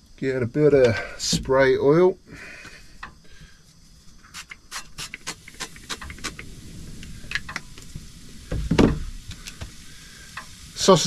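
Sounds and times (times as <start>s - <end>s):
spray-oil bottle spritzes: 4.2s - 6.4s.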